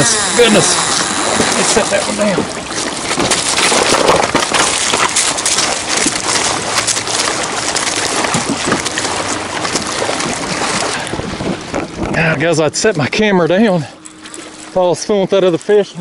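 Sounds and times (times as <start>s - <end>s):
small waves lapping on rocks: 0.0s - 12.6s.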